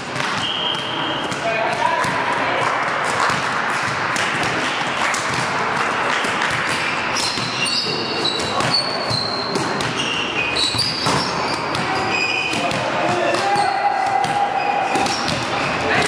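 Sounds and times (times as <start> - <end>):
steady hall din: 0.0 - 16.0
sneakers squeaking on floor: 0.2 - 2.1, 5.3 - 16.0.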